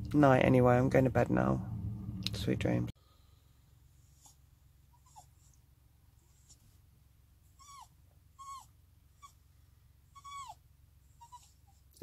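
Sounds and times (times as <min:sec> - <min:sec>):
low hum: 0:00.0 - 0:04.8
dog whimpering: 0:04.2 - 0:05.6, 0:07.5 - 0:09.4, 0:10.1 - 0:11.9
dog whining: 0:04.2 - 0:05.6, 0:07.5 - 0:09.4, 0:10.1 - 0:11.9.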